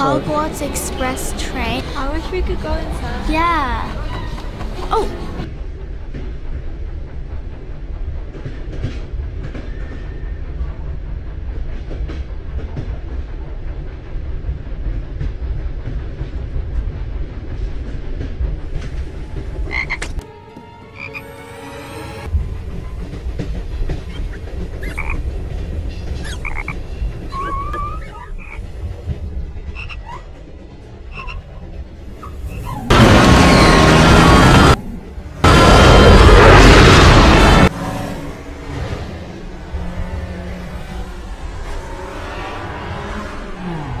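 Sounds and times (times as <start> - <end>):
train running rumble: 0.0 - 44.0
high squeaks and chirps: 27.2 - 28.4.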